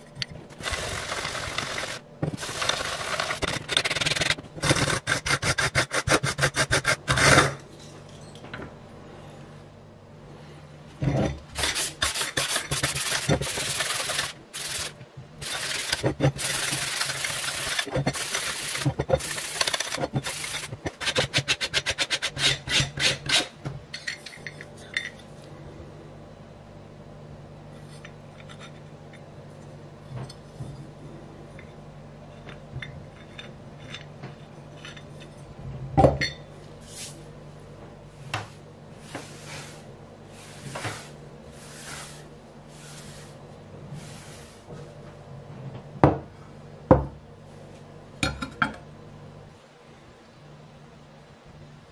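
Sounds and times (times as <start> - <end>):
block sanding metal cover: 11.6 - 23.5.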